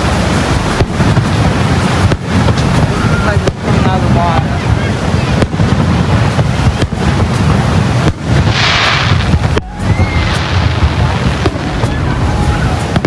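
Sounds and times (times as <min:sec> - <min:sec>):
firework hissing burst: 0:00.0 - 0:13.0
fireworks bangs: 0:00.0 - 0:13.0
low rumble: 0:00.0 - 0:13.0.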